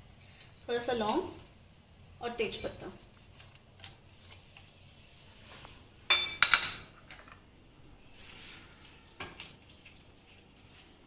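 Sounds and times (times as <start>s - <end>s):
kitchenware clattering: 6.1s - 7.4s.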